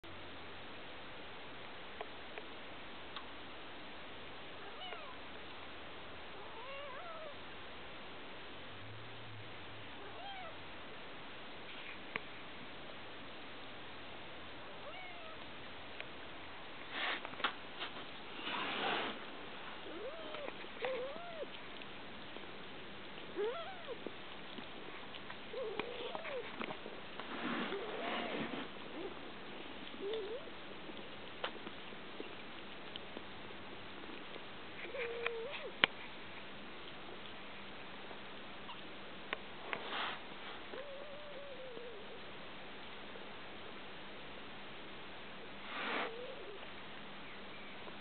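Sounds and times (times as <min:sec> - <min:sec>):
steady hiss: 0:00.1 - 0:34.9, 0:35.6 - 0:40.9, 0:42.0 - 0:48.0
kittens mewing: 0:19.8 - 0:21.6, 0:23.3 - 0:24.1, 0:25.5 - 0:26.6.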